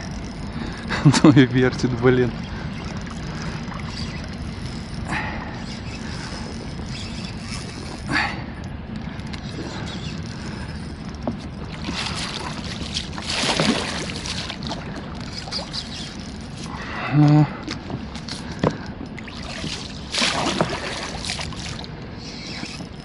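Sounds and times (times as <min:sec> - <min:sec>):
low rush of wind and water: 0:00.0 - 0:23.0
fish splashing at the surface: 0:11.8 - 0:14.9, 0:19.3 - 0:21.9.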